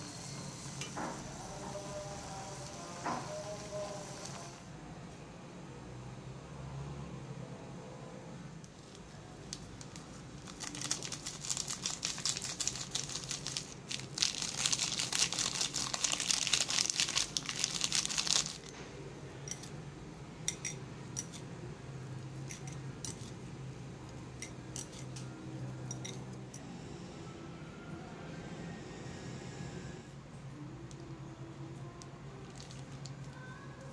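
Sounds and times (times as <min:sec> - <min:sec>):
plastic sachet crinkling: 0:09.6 - 0:18.7, 0:32.4 - 0:33.4.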